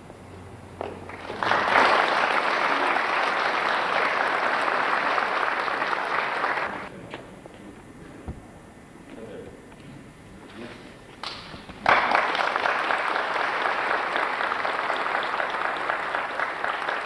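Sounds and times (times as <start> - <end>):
audience applauding: 1.0 - 6.9, 11.2 - 17.0.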